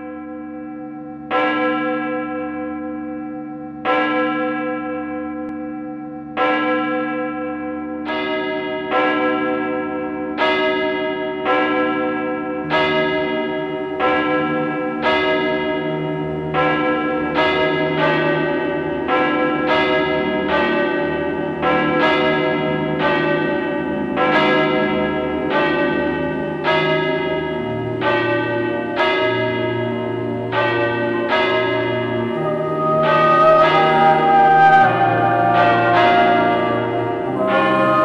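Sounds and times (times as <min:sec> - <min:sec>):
church bell ringing: 0:00.0 - 0:38.0
lower-pitched bell: 0:00.0 - 0:38.0.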